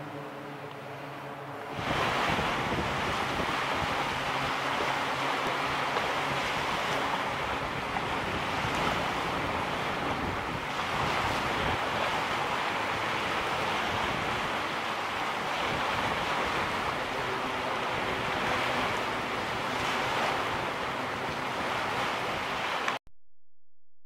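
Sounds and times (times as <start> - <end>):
waves washing on sandy beach: 0.0 - 23.0.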